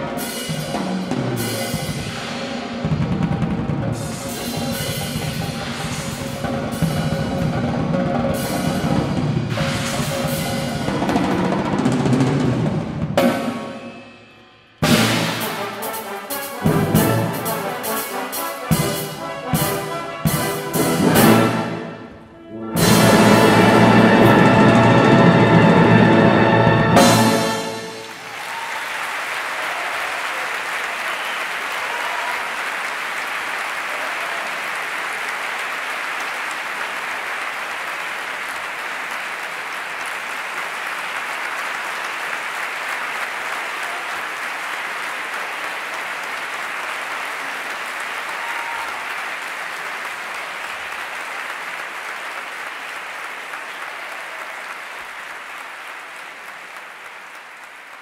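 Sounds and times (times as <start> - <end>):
audience applauding: 27.0 - 58.0.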